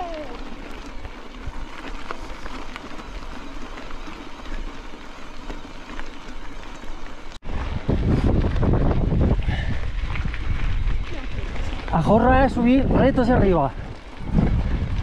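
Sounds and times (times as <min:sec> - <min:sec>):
tyres crackling over gravel: 0:00.0 - 0:15.0
wind buffeting microphone: 0:07.4 - 0:15.0.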